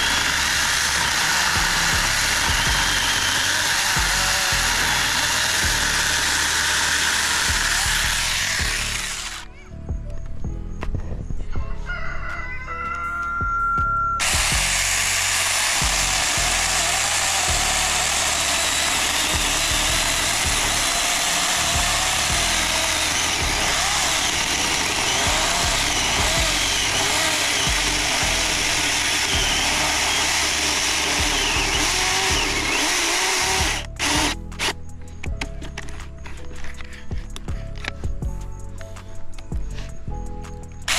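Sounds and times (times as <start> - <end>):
electric chainsaw cutting branch: 0.0 - 9.5, 14.2 - 34.8.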